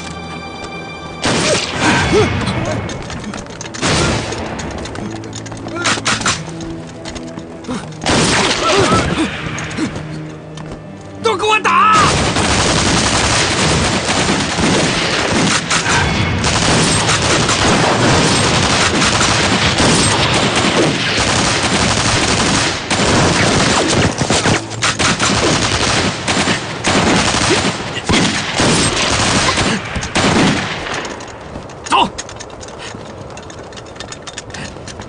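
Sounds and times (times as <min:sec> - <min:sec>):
rifles firing: 0:02.9 - 0:06.7, 0:08.0 - 0:09.1, 0:12.0 - 0:31.8.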